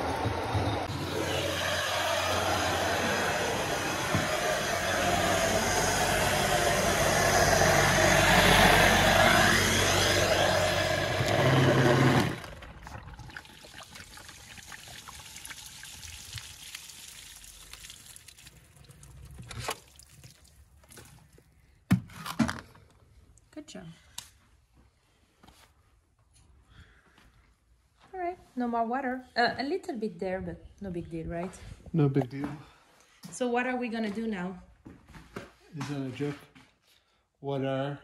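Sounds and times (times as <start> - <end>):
drainage pump humming: 0.0 - 19.9
water rushing through hose: 0.0 - 21.4.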